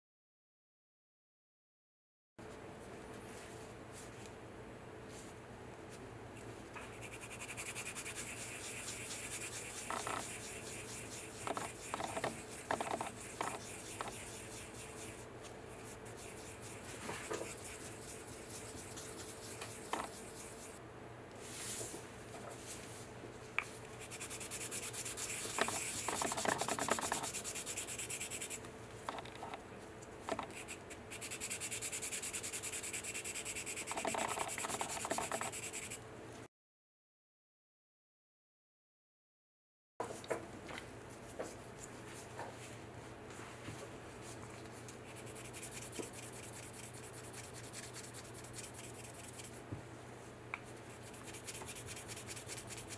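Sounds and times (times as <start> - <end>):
sanding stick rubbing: 6.8 - 20.8, 24.0 - 28.6, 30.5 - 36.0, 45.1 - 49.6, 51.0 - 52.9.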